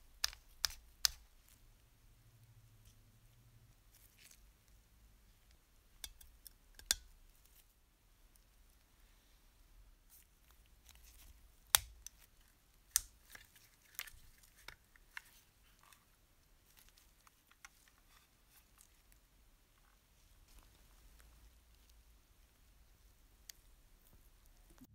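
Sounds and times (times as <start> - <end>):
plastic model parts clicking: 6.0 - 7.1.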